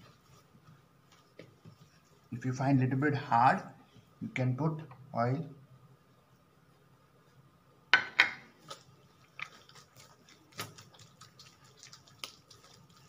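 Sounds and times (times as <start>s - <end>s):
dough being kneaded by hand: 0.0s - 2.8s, 8.4s - 13.0s.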